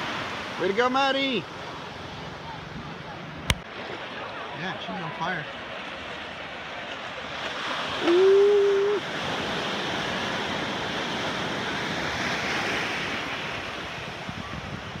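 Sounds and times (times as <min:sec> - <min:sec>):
small waves breaking: 0:00.0 - 0:15.0
person whooping: 0:08.0 - 0:09.0
wind on microphone: 0:13.0 - 0:15.0.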